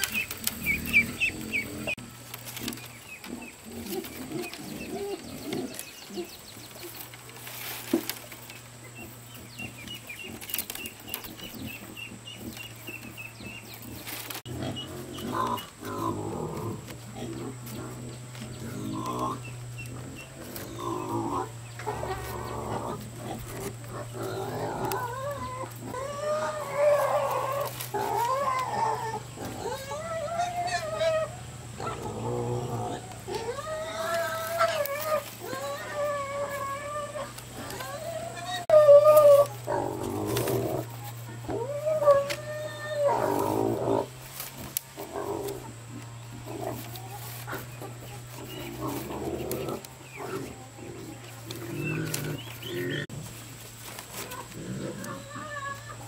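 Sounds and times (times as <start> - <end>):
animal crying: 18.6 - 44.2, 54.2 - 56.0
bamboo strips clicking: 33.1 - 38.1.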